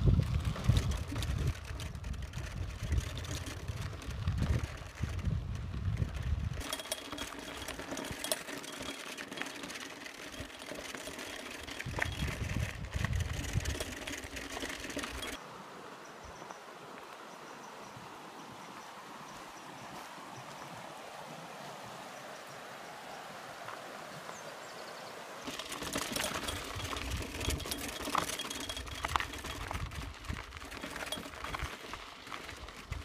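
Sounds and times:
wind buffeting microphone: 0.0 - 6.6, 11.8 - 15.4, 25.8 - 33.0
bicycle tyres rolling on dirt: 0.0 - 33.0
stream rushing: 15.2 - 26.7.

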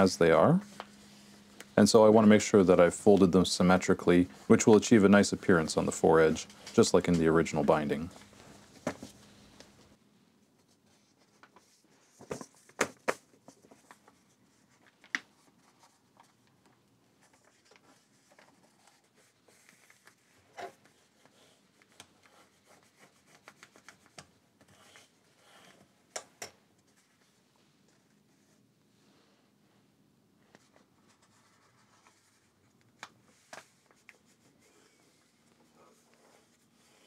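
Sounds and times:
paper rubbing and sliding: 30.5 - 32.6.

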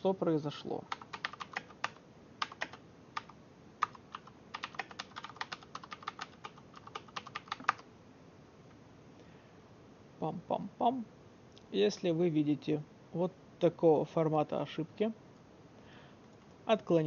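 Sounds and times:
computer keyboard typing: 0.9 - 7.8.

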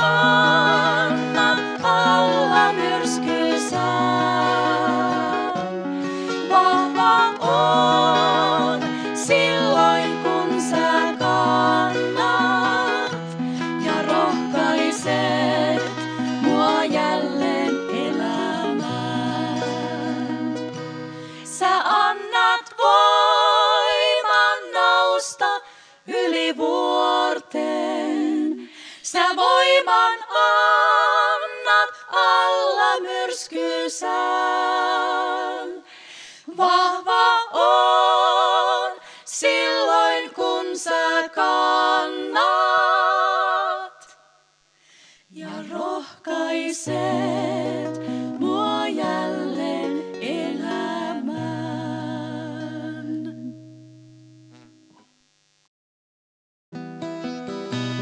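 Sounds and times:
acoustic guitars strumming: 0.0 - 22.5, 46.9 - 53.7, 56.8 - 58.0
women singing in harmony: 0.0 - 44.3, 45.3 - 53.6.

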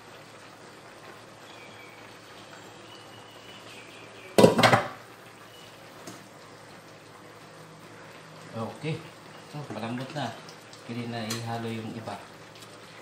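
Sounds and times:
faint simmering: 0.0 - 13.0
metal knocks on frying pan: 4.4 - 5.0.

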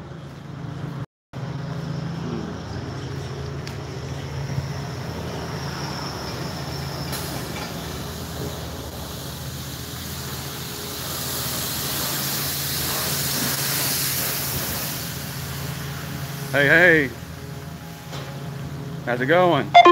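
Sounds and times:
car wash equipment humming: 0.2 - 19.6
water spraying hiss: 7.1 - 17.0.

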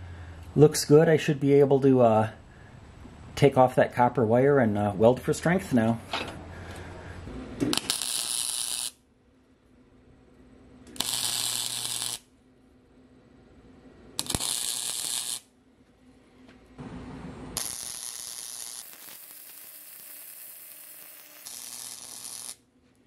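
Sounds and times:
welder arc crackling: 7.6 - 9.0, 10.8 - 12.3, 14.2 - 15.5, 16.7 - 23.0.

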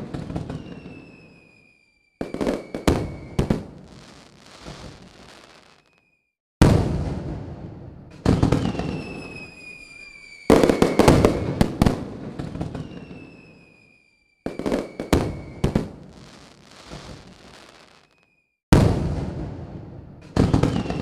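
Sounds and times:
fireworks bangs: 0.0 - 21.0
whistle falling in pitch: 0.5 - 3.5, 8.7 - 11.6, 12.7 - 15.7
sharp cracking bangs: 6.6 - 8.7, 18.7 - 21.0.

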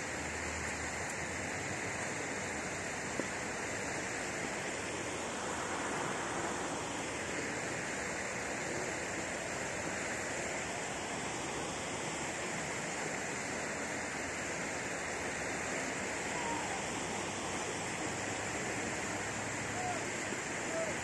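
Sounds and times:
fountain water splashing: 0.0 - 21.0.

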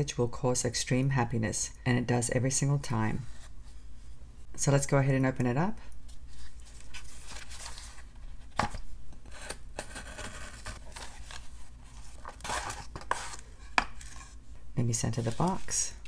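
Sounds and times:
paper rustling: 6.1 - 8.8, 9.8 - 14.4, 15.0 - 16.0
cardboard box handled: 9.8 - 14.2.

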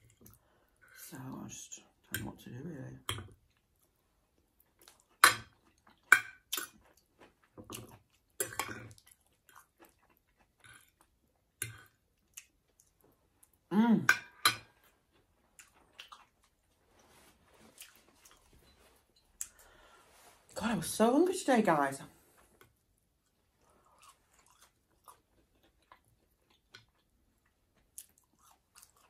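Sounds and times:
wet chewing and crunching: 3.3 - 13.6, 14.6 - 19.7, 22.7 - 29.0.

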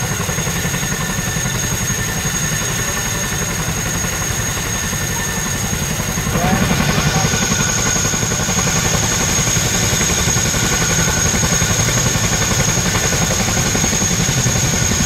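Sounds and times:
helicopter rotor blades beating: 0.0 - 15.0
high whine: 5.8 - 12.2.

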